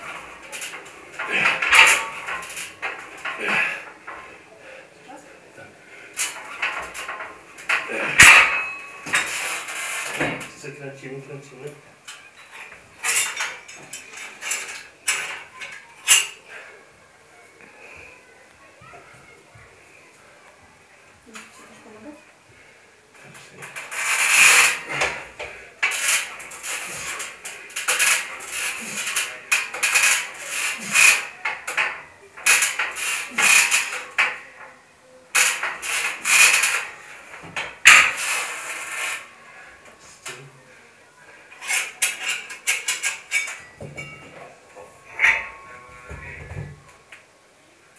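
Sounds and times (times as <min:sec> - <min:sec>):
cable running over pulleys: 0:00.0 - 0:04.3, 0:23.6 - 0:34.4
metallic clanks of gym weights: 0:00.0 - 0:04.3, 0:06.2 - 0:10.6, 0:35.4 - 0:39.2, 0:41.5 - 0:47.0.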